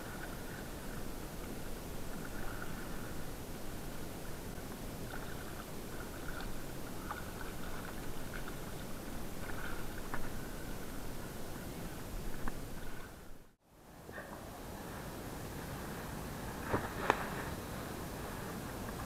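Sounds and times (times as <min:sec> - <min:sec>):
muffled water sloshing: 0:00.0 - 0:13.6
faint water splashes: 0:00.0 - 0:19.0.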